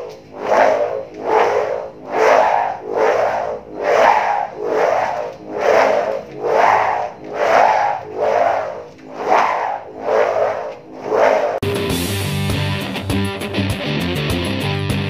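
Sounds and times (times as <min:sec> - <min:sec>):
ribbon bow humming when swung: 0:00.0 - 0:11.6.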